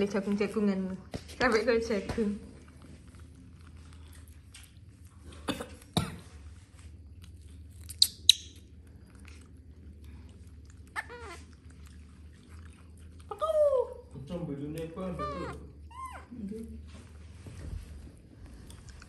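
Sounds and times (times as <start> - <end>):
baby monkeys squeaking: 7.9 - 8.6, 10.9 - 11.5, 15.0 - 16.3
monkey pitched call: 11.0 - 11.5, 15.1 - 16.3.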